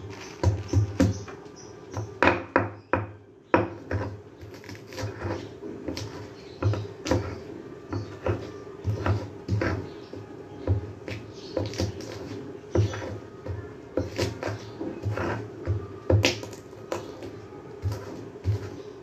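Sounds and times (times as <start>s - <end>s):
stone pestle pounding in mortar: 4.9s - 9.9s, 10.6s - 17.2s.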